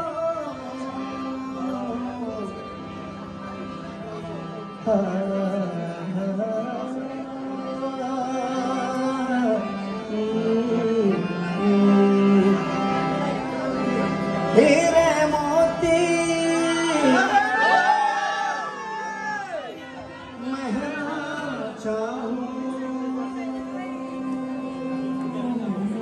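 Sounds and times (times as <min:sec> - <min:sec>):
man singing: 0:00.0 - 0:02.8, 0:04.7 - 0:13.3, 0:14.4 - 0:17.9, 0:20.1 - 0:26.0
harmonium melody over drone: 0:00.0 - 0:26.0.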